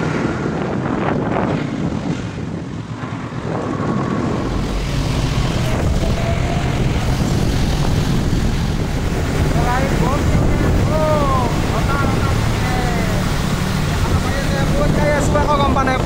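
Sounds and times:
wind rushing over microphone: 0.0s - 16.0s.

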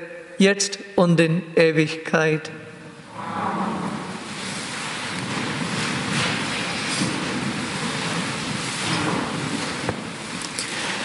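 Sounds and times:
crowd shuffling and rustling: 3.6s - 11.0s.

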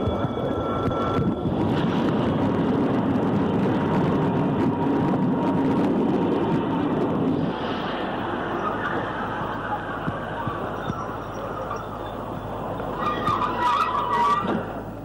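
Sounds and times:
faint steady whine: 0.0s - 15.0s
train rumbling: 0.0s - 15.0s.

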